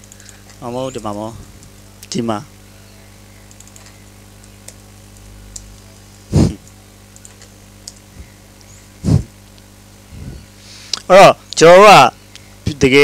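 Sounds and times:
low electrical hum: 0.0s - 13.0s
keyboard and mouse clicks: 3.5s - 5.8s, 7.1s - 8.1s.

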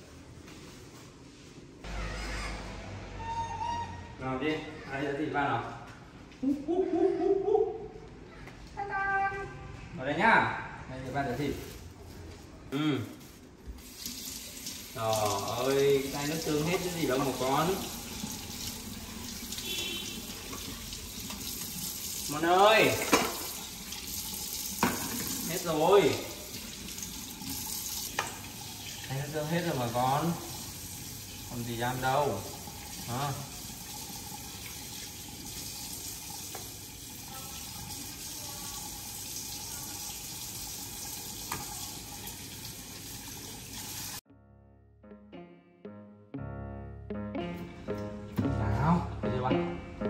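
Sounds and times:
water running from tap into sink: 13.8s - 44.2s.

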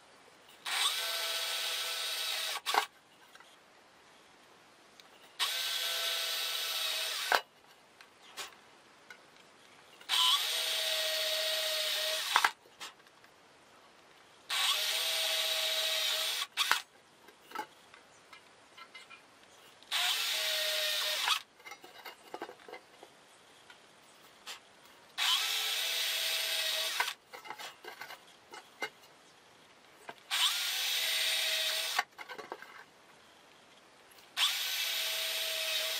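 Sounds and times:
electric drill boring through metal: 0.6s - 2.9s, 5.4s - 7.4s, 10.1s - 12.5s, 14.5s - 16.8s, 19.9s - 21.4s, 25.2s - 27.2s, 30.3s - 32.1s, 34.4s - 35.9s.

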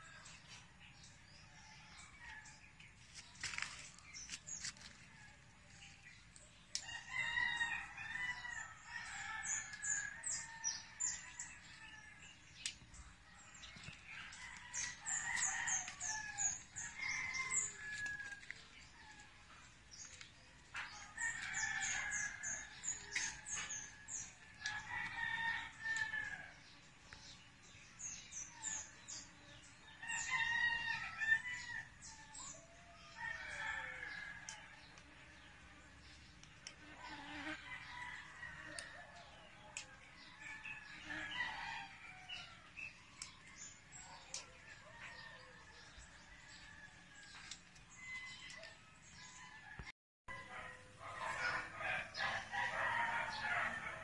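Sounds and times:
roosters crowing: 6.8s - 12.2s, 13.6s - 19.3s, 20.7s - 26.8s, 29.9s - 35.2s, 36.8s - 54.0s.

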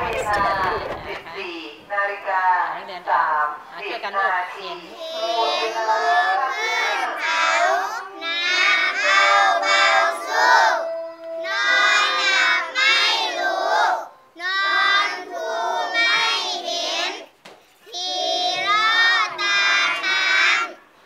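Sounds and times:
children singing together: 5.0s - 17.3s, 17.9s - 20.9s.

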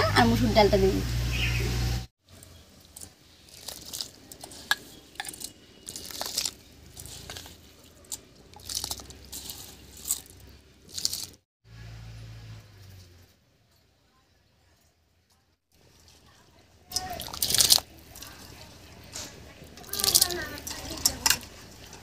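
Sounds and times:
water boiling and bubbling: 0.5s - 11.4s, 15.7s - 22.0s.

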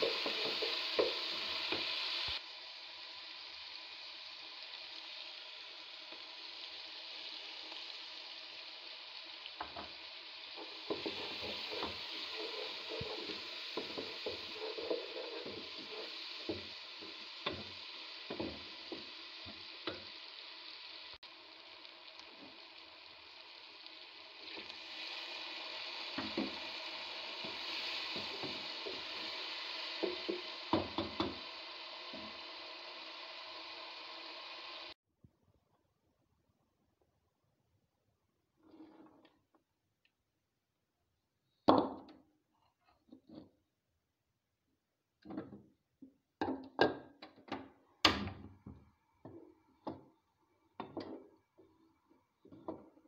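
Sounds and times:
wooden spoon scraping pot: 0.0s - 1.9s, 10.6s - 17.6s
curry simmering sizzle: 0.0s - 35.0s.

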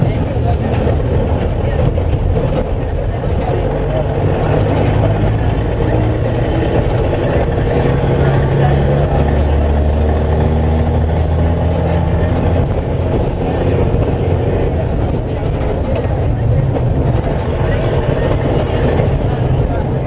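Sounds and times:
bus diesel engine running: 0.0s - 20.0s.

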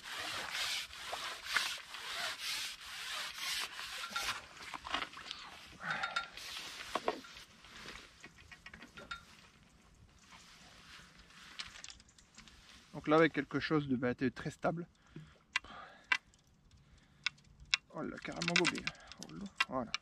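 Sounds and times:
rubbing and rustling handling noise: 0.0s - 13.8s
small clicks: 14.4s - 20.0s.

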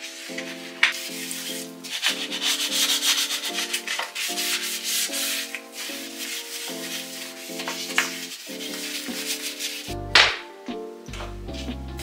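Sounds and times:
brush scrubbing a hard surface: 0.0s - 10.0s
soft sustained chords music: 4.9s - 12.0s.

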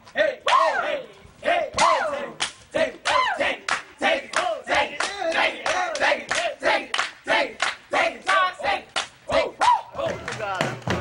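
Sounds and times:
voices shouting and chanting: 0.0s - 11.0s
hand claps and body slaps: 1.8s - 11.0s.

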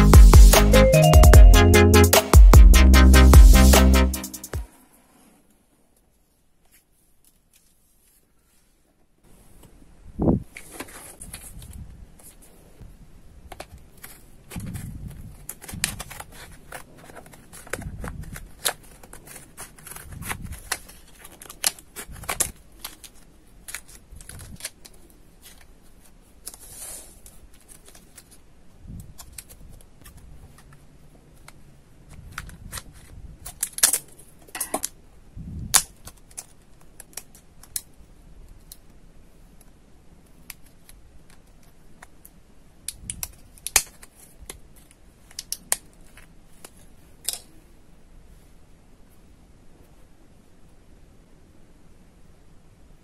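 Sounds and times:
stiff plastic crinkling and clicking: 13.5s - 25.8s, 35.8s - 37.9s.

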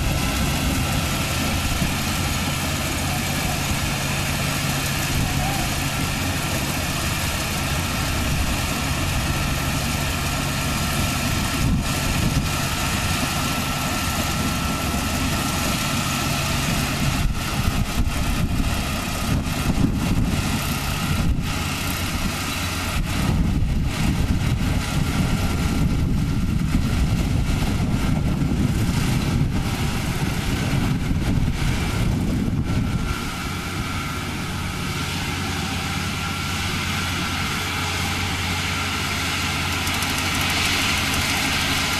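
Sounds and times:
combine harvester engine droning: 0.0s - 41.9s.

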